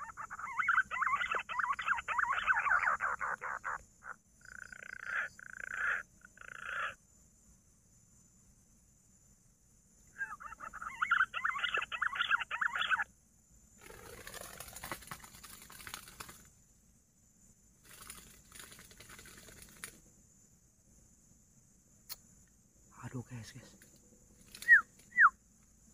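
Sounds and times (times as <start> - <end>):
whistled pigeon call: 10.1 - 13.0, 24.5 - 25.4
rustling with quick flutters: 13.8 - 16.5, 17.8 - 20.0, 23.8 - 25.2.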